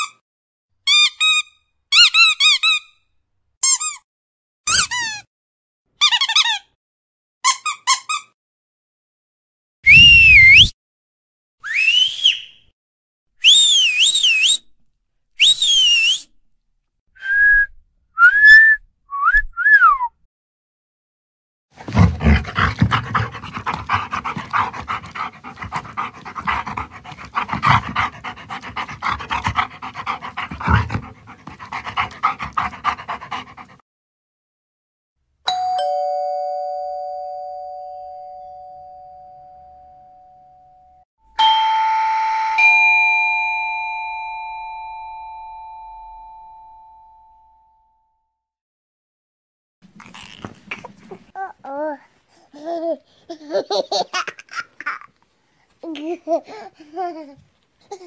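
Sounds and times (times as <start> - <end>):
sliding whistle notes: 9.9 - 10.7, 11.6 - 12.6, 13.4 - 14.6, 15.4 - 16.3, 17.2 - 20.1
warbling whistle: 9.9 - 10.7
dog panting: 21.8 - 33.8
two-tone doorbell chime: 35.5 - 47.9.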